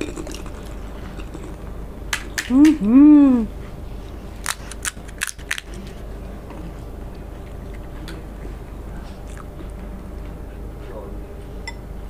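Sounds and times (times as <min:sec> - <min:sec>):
steady background noise: 0:00.0 - 0:12.0
crisp shells crunching: 0:04.4 - 0:06.0.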